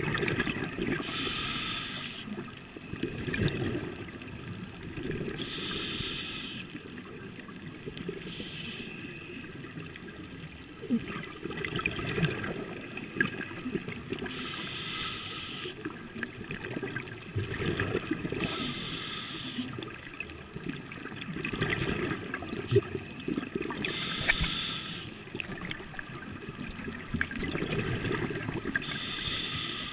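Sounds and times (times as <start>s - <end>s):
exhaled air bubbling: 0.0s - 1.5s, 2.2s - 5.7s, 9.4s - 14.6s, 15.7s - 29.9s
regulator hissing inhale: 1.0s - 2.5s, 5.3s - 6.8s, 8.2s - 9.3s, 14.3s - 15.9s, 18.4s - 19.8s, 23.8s - 25.2s, 28.2s - 29.9s.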